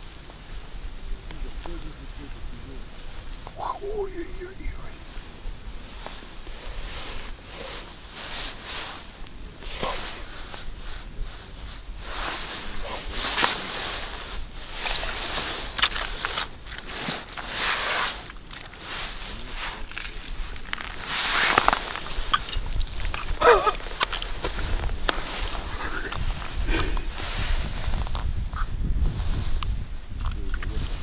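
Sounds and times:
padded jacket rustling: 5.9s - 28.5s.

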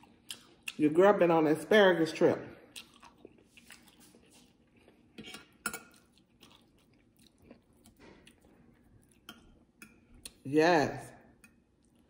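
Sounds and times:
person chewing: 0.0s - 0.8s, 2.6s - 10.4s, 11.4s - 12.0s.

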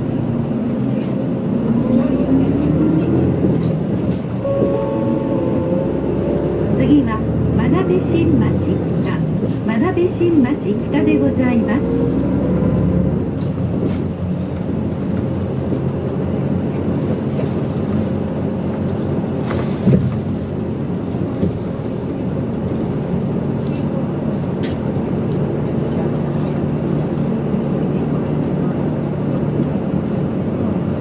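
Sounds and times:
bus engine humming: 0.0s - 31.0s
road and tyre noise: 0.0s - 31.0s.

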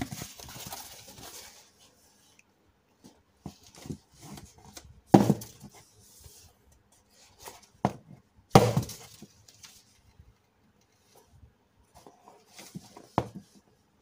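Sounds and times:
stabs and thuds on cardboard: 5.1s - 5.7s, 7.8s - 9.2s.

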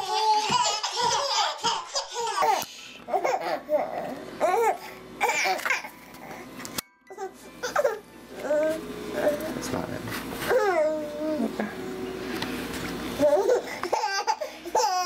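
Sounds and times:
babies laughing: 0.0s - 3.7s, 13.2s - 15.0s.

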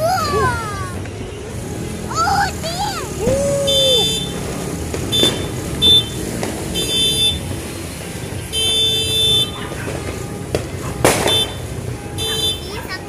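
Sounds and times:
horn tooting: 0.3s - 13.0s
firework bang: 3.2s - 7.4s, 8.8s - 11.8s.

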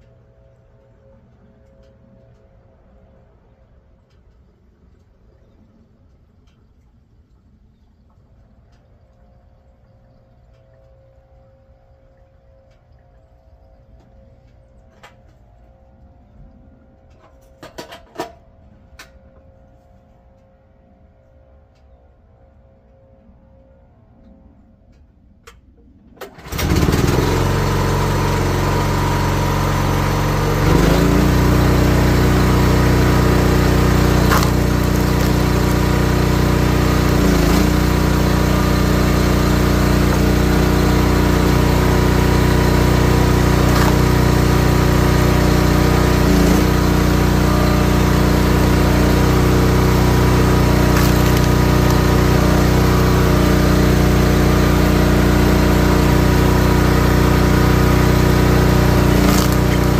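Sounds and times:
small gas engine running: 26.2s - 59.9s
sharp cracks: 50.7s - 52.4s, 59.1s - 59.9s.

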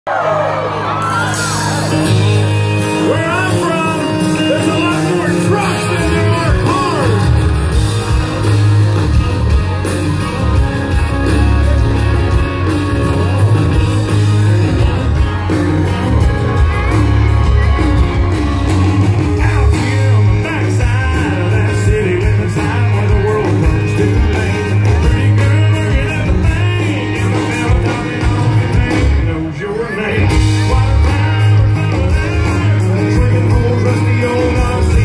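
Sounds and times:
live country rock band: 0.1s - 35.0s
booming bass: 4.2s - 29.4s
person singing: 19.2s - 35.0s.

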